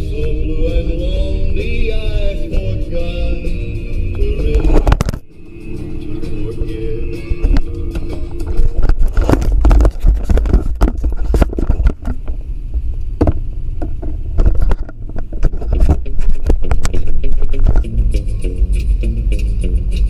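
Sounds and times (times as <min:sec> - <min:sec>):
car road rumble: 0:00.0 - 0:20.0
dashcam knocks and scrapes: 0:04.5 - 0:05.2, 0:07.4 - 0:17.9.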